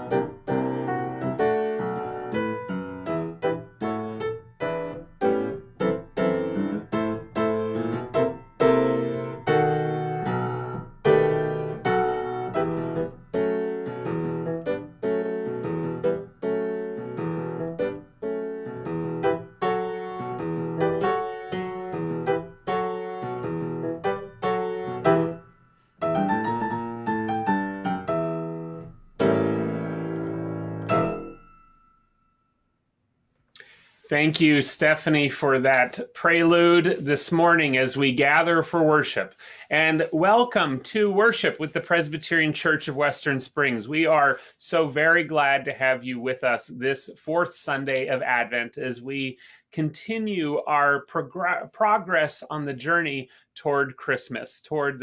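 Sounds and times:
upright piano playing: 0.0s - 32.0s.

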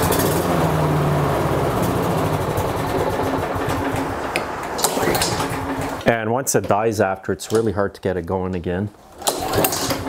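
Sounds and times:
lawnmower engine running: 0.0s - 6.2s.

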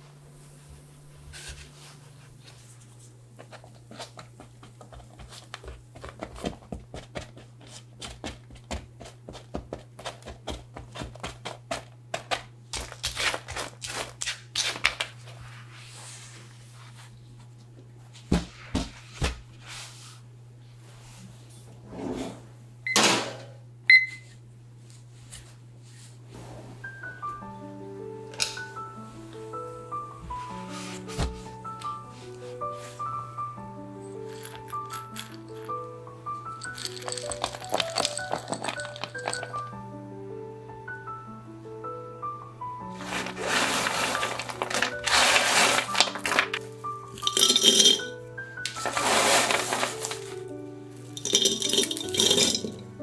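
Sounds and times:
steady low hum: 0.0s - 10.0s
kitchen timer beep: 23.9s - 24.3s
spatula scraping granola on tray: 43.0s - 46.4s, 48.8s - 50.3s
loud rustle: 48.8s - 50.4s.

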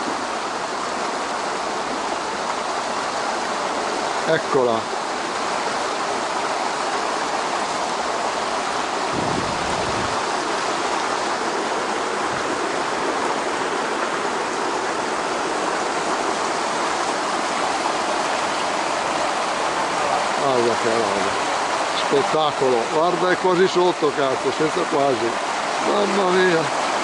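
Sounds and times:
stream water flowing: 0.0s - 27.0s.

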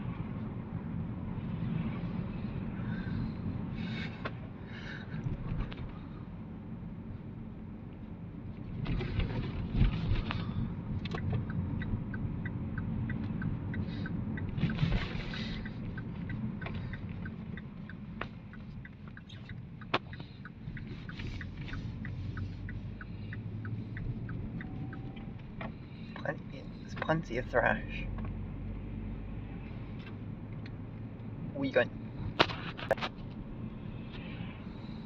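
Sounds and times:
car engine and road noise: 0.0s - 35.0s
regular ticking: 11.0s - 27.2s.

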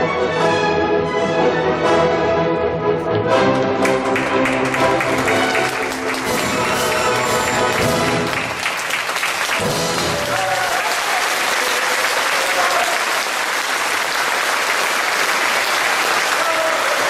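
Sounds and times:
orchestra playing ballet music: 0.0s - 10.9s
audience applauding: 3.7s - 17.0s.

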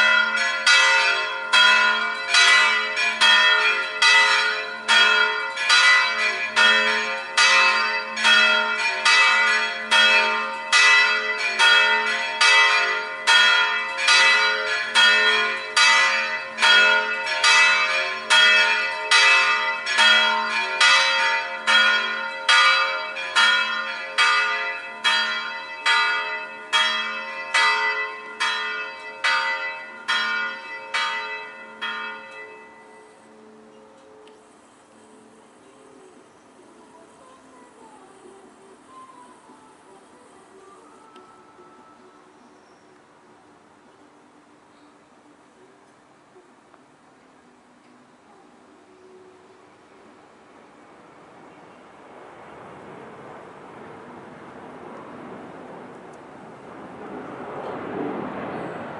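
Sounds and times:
church bells ringing: 0.0s - 35.3s.

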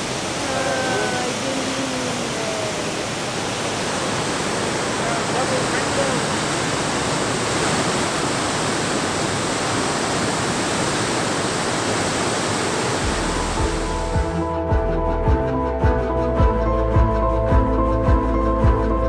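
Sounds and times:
waterfall rushing: 0.0s - 14.6s
background music with beat: 13.1s - 19.0s.

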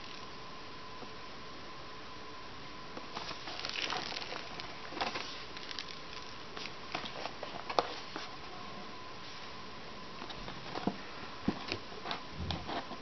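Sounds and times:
steady hiss with high tone: 0.0s - 10.3s
cardboard box rustling and scraping: 3.2s - 5.5s.

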